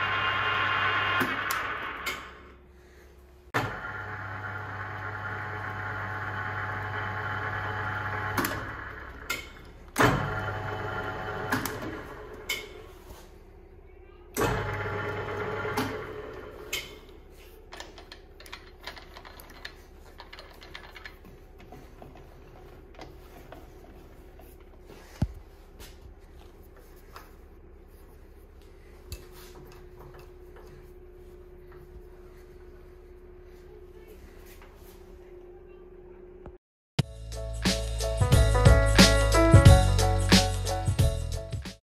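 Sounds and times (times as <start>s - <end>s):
lathe mechanism running: 0.0s - 2.5s, 3.6s - 12.9s, 14.4s - 17.0s.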